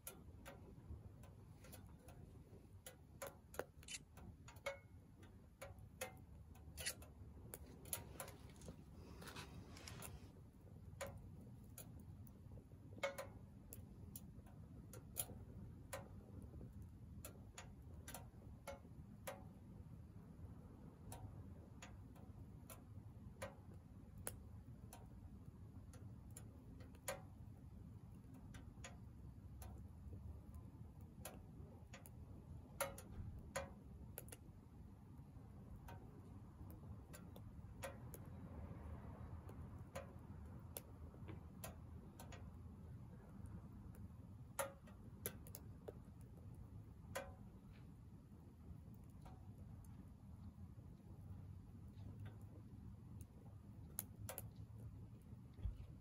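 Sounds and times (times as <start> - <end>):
stove low rumble: 0.0 - 56.0
firewood crackling and popping: 0.1 - 18.5.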